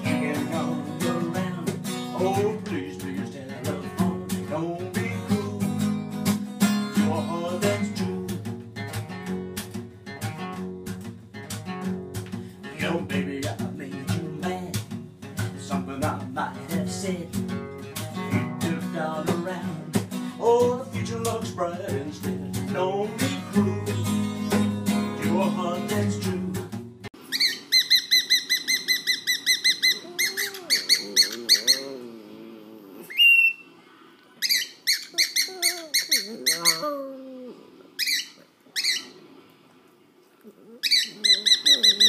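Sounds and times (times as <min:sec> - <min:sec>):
acoustic guitar strumming: 0:00.0 - 0:27.1
bird rising whistle: 0:27.3 - 0:30.1, 0:33.1 - 0:33.7
cockatiel chirping: 0:27.3 - 0:31.9, 0:34.4 - 0:36.9, 0:38.0 - 0:39.2, 0:40.8 - 0:42.0
low wavering bird sounds: 0:27.4 - 0:39.4, 0:40.7 - 0:42.0.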